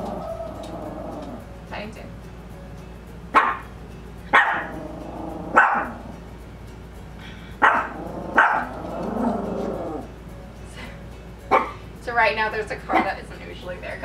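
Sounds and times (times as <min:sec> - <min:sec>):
small dog barking: 0:03.4 - 0:03.7, 0:04.3 - 0:04.8, 0:05.5 - 0:06.0, 0:07.6 - 0:08.7, 0:11.5 - 0:11.8.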